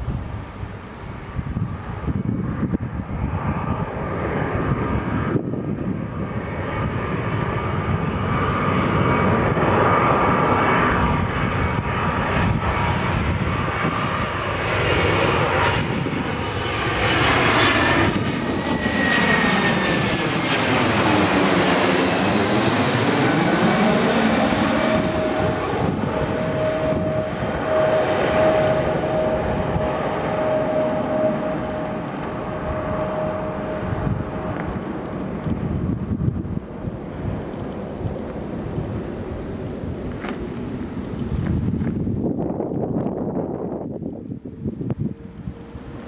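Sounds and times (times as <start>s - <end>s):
jet airliner passing overhead: 0.0s - 46.0s
high whine falling in pitch: 17.7s - 36.7s.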